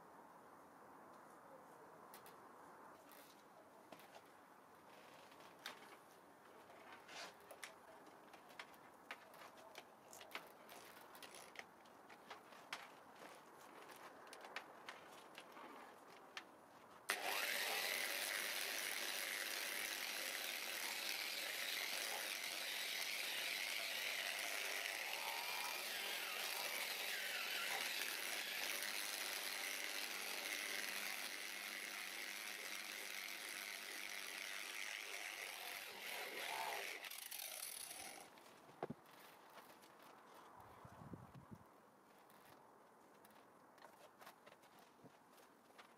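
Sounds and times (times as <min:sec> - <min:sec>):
electric polisher running: 0:17.1 - 0:31.9.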